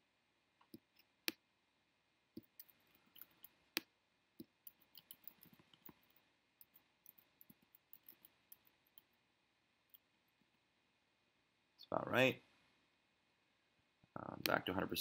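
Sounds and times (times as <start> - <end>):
computer mouse clicking: 2.4 - 9.1.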